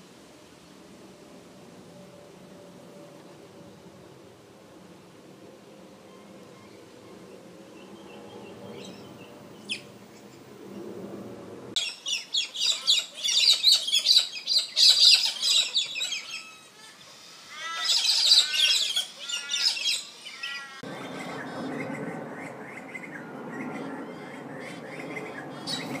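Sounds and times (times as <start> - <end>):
steady low rumble: 7.2 - 11.8, 20.8 - 26.0
birds calling high-pitched: 11.8 - 26.0.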